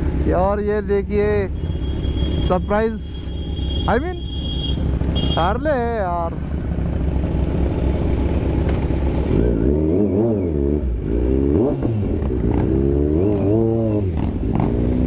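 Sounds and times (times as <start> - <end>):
motorcycle engine revving: 3.3 - 15.0.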